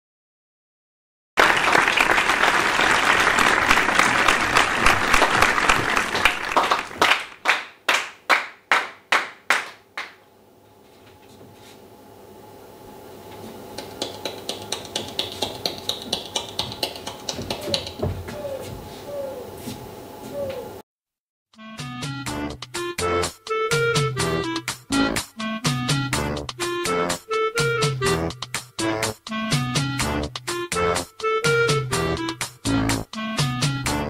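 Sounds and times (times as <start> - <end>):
audience applause: 1.4 - 10.2
loud single claps: 3.7 - 10.2.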